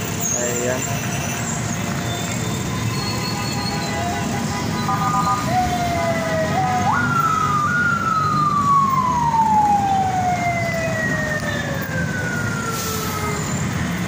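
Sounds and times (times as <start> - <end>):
traffic rumble: 0.0 - 14.0
siren wailing: 3.5 - 14.0.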